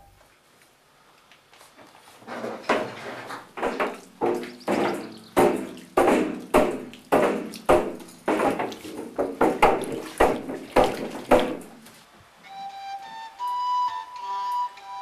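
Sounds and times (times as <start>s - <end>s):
curd sloshing in metal vat: 2.2s - 12.0s.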